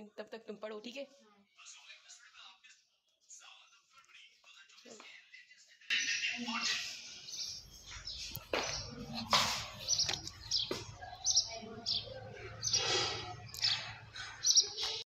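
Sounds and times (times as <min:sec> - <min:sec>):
small birds chirping: 0:05.9 - 0:15.0.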